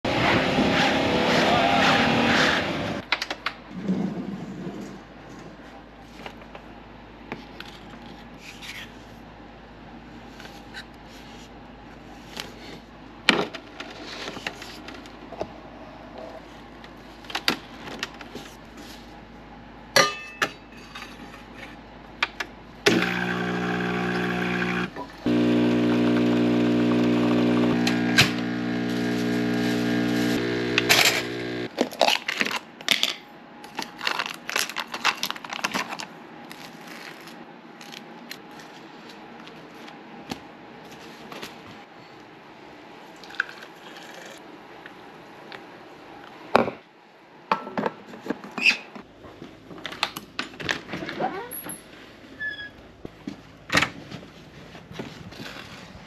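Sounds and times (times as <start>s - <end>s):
espresso machine pump buzzing: 22.9s - 31.7s.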